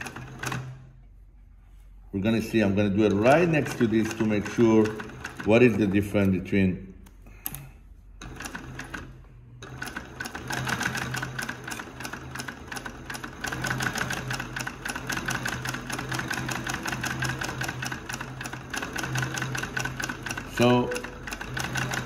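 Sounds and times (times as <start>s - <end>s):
sewing machine motor humming: 0.0s - 0.9s, 2.9s - 6.1s, 8.2s - 22.0s
sewing machine stitch clatter: 0.0s - 0.9s, 3.0s - 6.0s, 8.2s - 22.0s.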